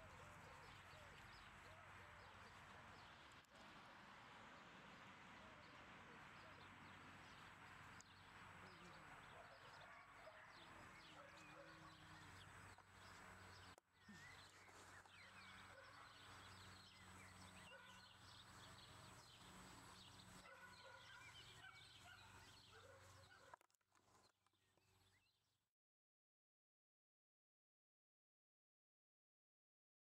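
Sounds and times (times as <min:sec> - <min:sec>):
faint birds chirping: 0:04.9 - 0:25.4.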